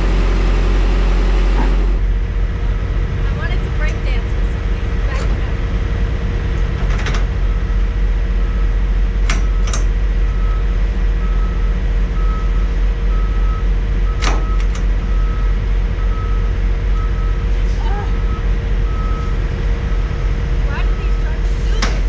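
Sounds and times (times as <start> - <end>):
diesel trucks idling: 0.0 - 22.0
reversing alarm beeping: 7.4 - 22.0.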